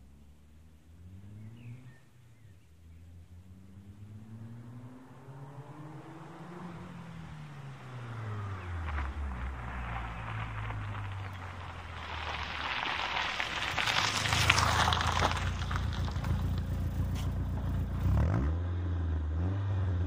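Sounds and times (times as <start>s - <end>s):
car engine accelerating: 0.0s - 20.0s
gravel crackling under tyres: 0.0s - 20.0s.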